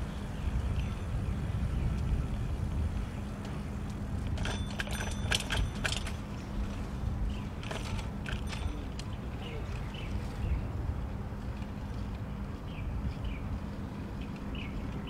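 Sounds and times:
bicycle riding rumble: 0.0s - 15.0s
rattling clicks: 4.2s - 6.5s, 7.6s - 9.2s.

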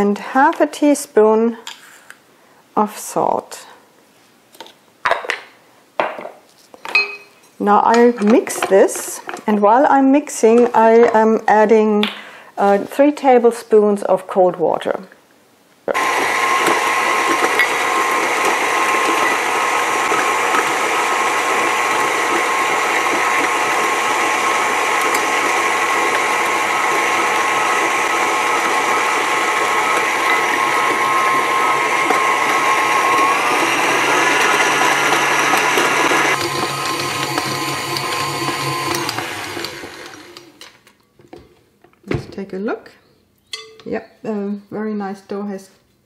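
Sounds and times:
stand mixer motor whining: 15.9s - 40.7s.

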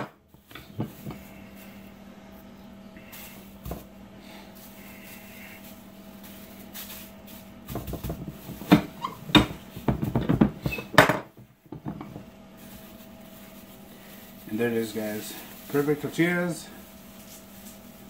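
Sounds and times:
steady low hum: 0.0s - 18.0s
plastic sheeting crinkling: 0.3s - 9.9s, 12.2s - 18.0s.

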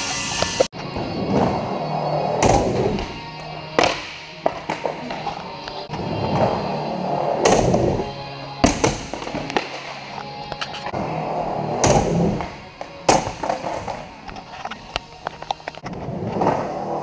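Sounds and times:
skateboard wheels rolling on concrete: 0.0s - 17.0s.

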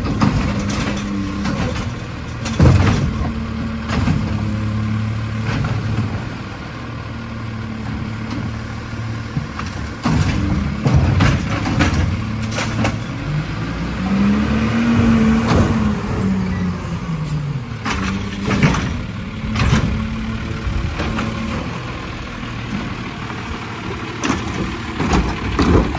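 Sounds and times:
hydraulic arm tipping a cart: 0.0s - 6.4s, 7.8s - 13.4s, 15.3s - 21.8s, 24.1s - 25.9s
diesel truck engine: 0.0s - 25.9s.

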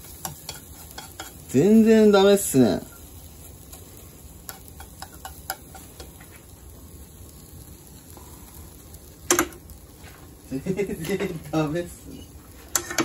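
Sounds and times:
omelette sizzling in frying pan: 0.0s - 13.0s
chopsticks clicking against pan: 0.1s - 1.4s, 4.5s - 6.2s.

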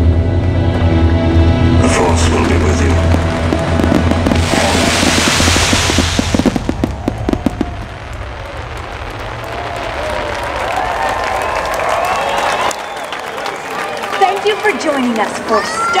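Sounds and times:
music: 0.0s - 6.0s
fountain fireworks hissing: 1.8s - 12.9s
fireworks crackling and banging: 1.8s - 15.4s.

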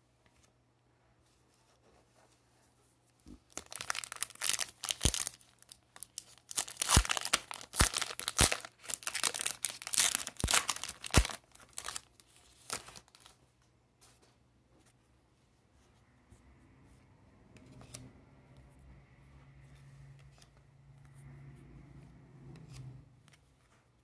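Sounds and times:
foil wrapper tearing and crinkling: 3.5s - 13.3s.

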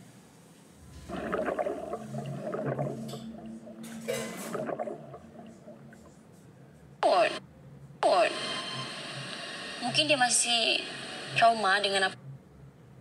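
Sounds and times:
underwater splashing and bubbling: 0.8s - 6.4s.

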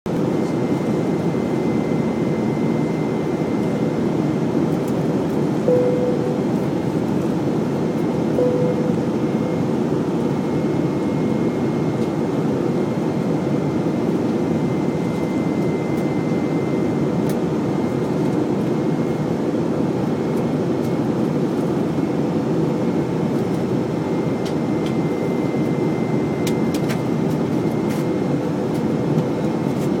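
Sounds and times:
jet engines and rushing air: 0.1s - 30.0s
faint high whine: 5.5s - 19.1s.

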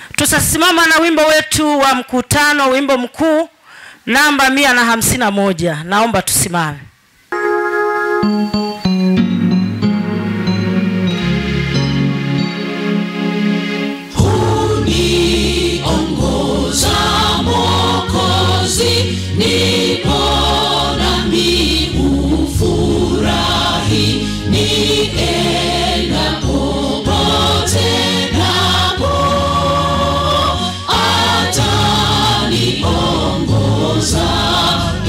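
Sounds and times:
choir and congregation singing hymn: 14.1s - 35.0s.

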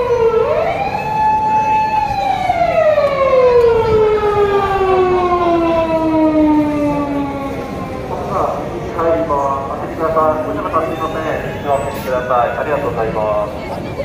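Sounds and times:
emergency siren wail falling: 0.0s - 9.0s.

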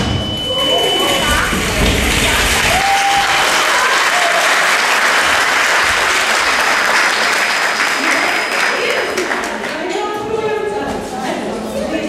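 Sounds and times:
audience applauding: 1.5s - 9.8s.

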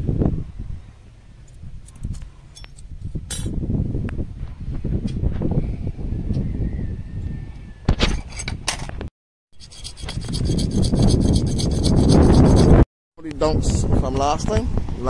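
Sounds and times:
metallic tool clinks: 2.1s - 3.5s
hand file rasping on metal: 9.6s - 12.8s.

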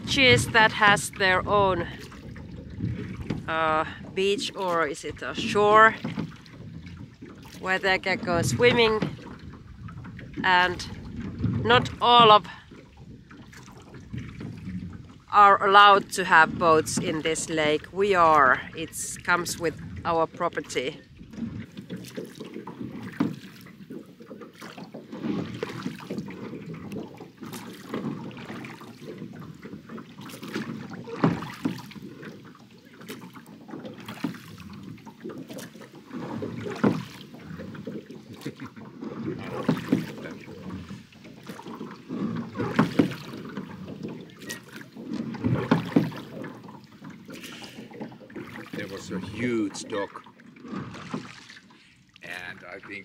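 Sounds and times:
oars splashing in water: 0.0s - 53.0s
oar knocks: 21.2s - 51.6s.

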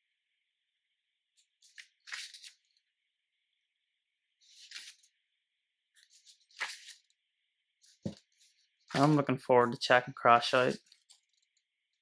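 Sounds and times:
booklet pages turning: 1.4s - 2.9s, 4.4s - 5.2s, 5.9s - 7.2s, 7.8s - 9.4s, 10.5s - 12.0s.

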